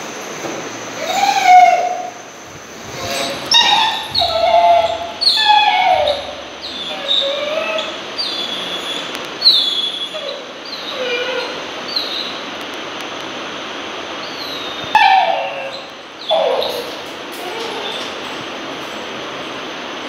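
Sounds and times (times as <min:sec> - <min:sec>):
dog whining: 0:01.0 - 0:12.4, 0:14.2 - 0:18.6.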